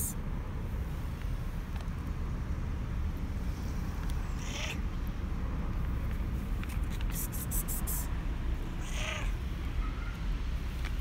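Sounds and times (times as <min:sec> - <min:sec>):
steady low rumble: 0:00.0 - 0:11.0
cat meowing: 0:04.3 - 0:04.8, 0:08.8 - 0:09.4.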